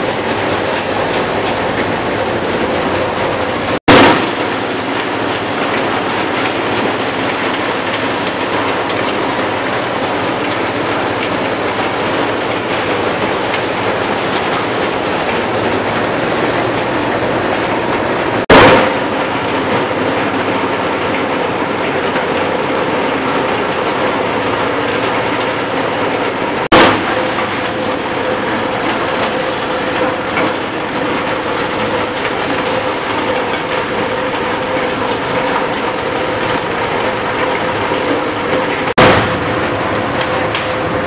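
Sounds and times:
corn sheller drone and rattle: 0:00.0 - 0:41.0
sudden loud click: 0:18.5 - 0:19.0, 0:39.0 - 0:39.5.

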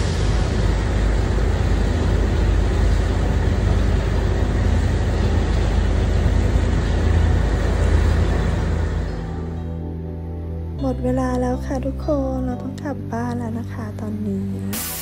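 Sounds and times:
motorboat engine drone: 0:00.0 - 0:10.5.

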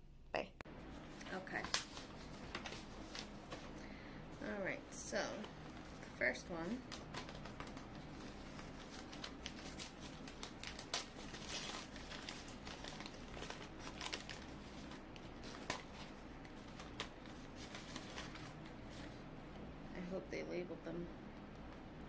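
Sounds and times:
packing paper crinkling: 0:00.9 - 0:03.8, 0:05.3 - 0:19.2.

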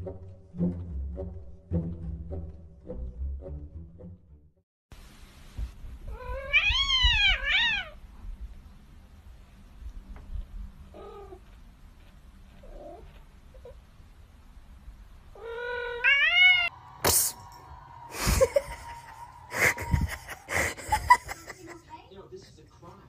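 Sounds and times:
cat meowing: 0:06.1 - 0:08.0, 0:15.3 - 0:16.7.

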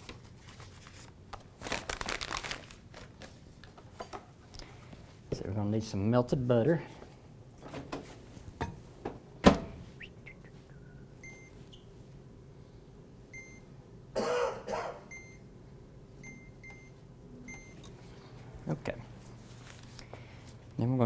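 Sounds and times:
microwave keypad beeps: 0:11.2 - 0:11.9, 0:13.3 - 0:13.7, 0:15.1 - 0:15.4, 0:16.2 - 0:17.8.

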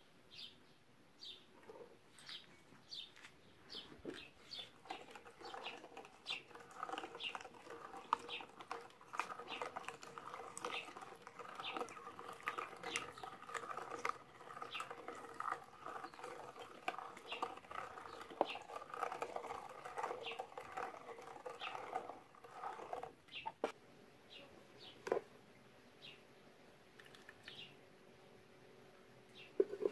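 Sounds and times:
mincer grinding rub: 0:03.7 - 0:23.7
grapes crunching and clicking: 0:04.0 - 0:23.1.

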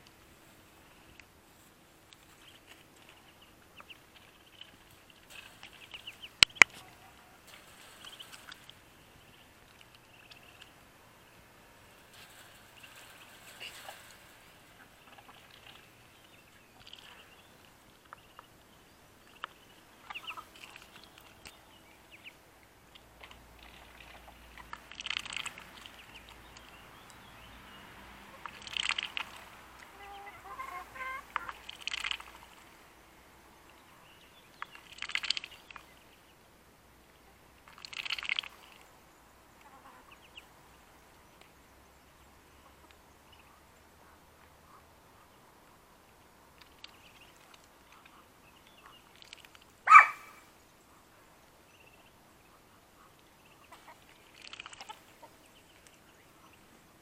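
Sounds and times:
hens clucking: 0:02.1 - 0:18.4, 0:19.4 - 0:21.5, 0:28.2 - 0:32.8, 0:52.6 - 0:55.5
hens squawking: 0:28.5 - 0:32.4, 0:49.9 - 0:50.4.

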